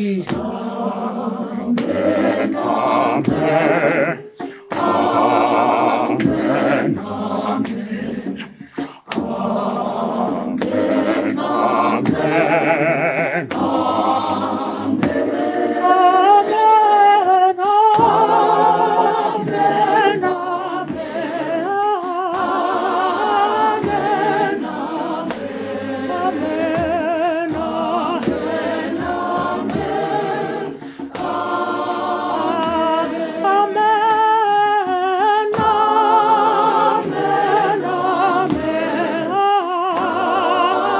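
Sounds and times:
mixed choir singing a cappella: 0:00.0 - 0:40.9.

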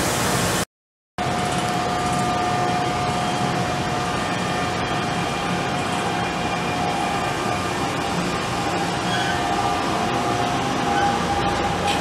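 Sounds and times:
steady whine: 0:01.2 - 0:12.0
train rolling past at speed: 0:01.2 - 0:12.0.

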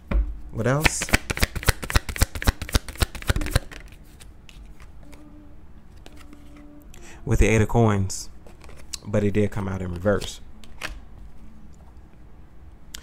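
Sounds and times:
cards being shuffled: 0:00.8 - 0:05.3, 0:05.9 - 0:06.7, 0:08.4 - 0:09.1.

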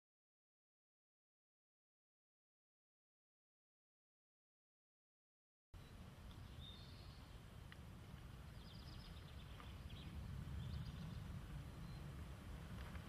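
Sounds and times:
small birds chirping: 0:05.8 - 0:12.3
steady low rumble: 0:05.8 - 0:13.0.

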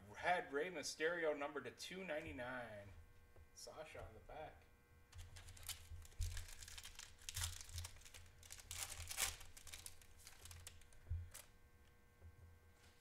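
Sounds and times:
foil wrapper crinkling and tearing: 0:05.2 - 0:11.5.

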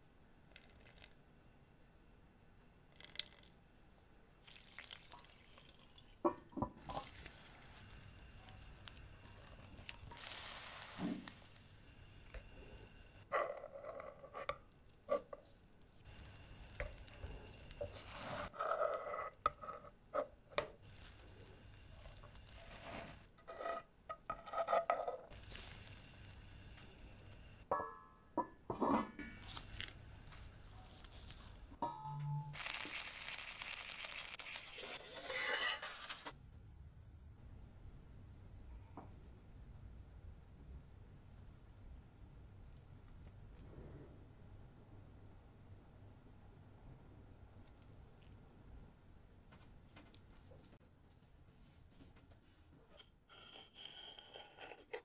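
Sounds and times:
metal spatula scraping steel rings: 0:34.8 - 0:36.3.

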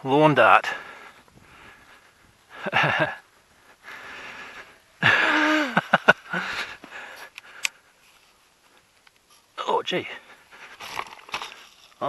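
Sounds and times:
person gasping and breathing: 0:03.8 - 0:07.8
sharp clicks: 0:07.3 - 0:07.8.

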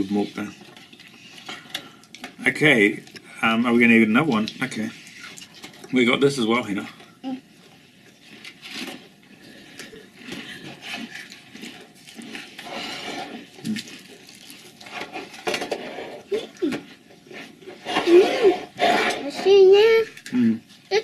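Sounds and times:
snack wrapper rustling: 0:07.6 - 0:15.5.

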